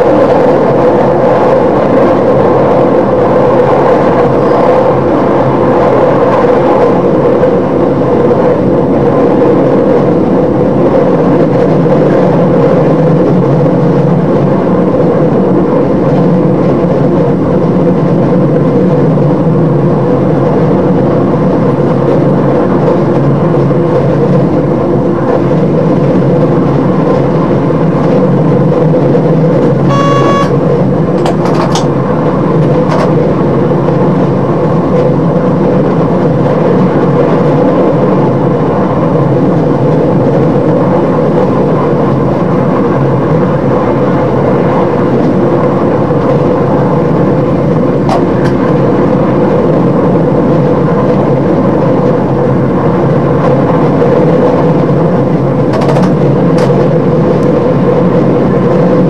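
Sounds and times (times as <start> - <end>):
train engine and wheels droning: 0.0 - 59.0
short electronic beep: 29.9 - 30.6.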